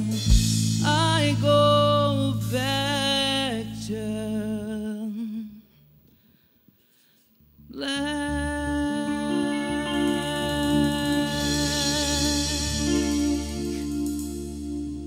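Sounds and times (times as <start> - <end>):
live band playing: 0.0 - 2.7, 9.2 - 15.0
woman singing: 0.0 - 5.7, 7.7 - 14.8.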